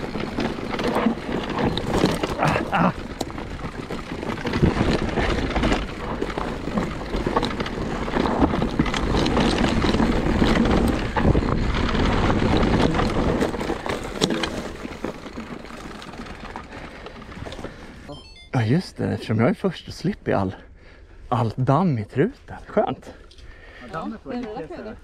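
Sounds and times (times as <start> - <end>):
bike frame and chain rattling: 0.0 - 18.0
bike tyres on dirt and stones: 0.0 - 25.0.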